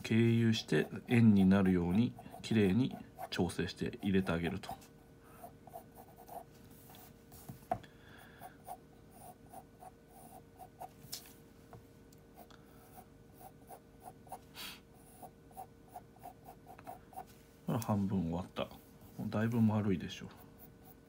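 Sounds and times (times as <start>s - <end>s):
pencil scratching on paper: 0.5s - 7.6s, 8.6s - 11.0s, 12.8s - 17.3s, 20.3s - 21.0s.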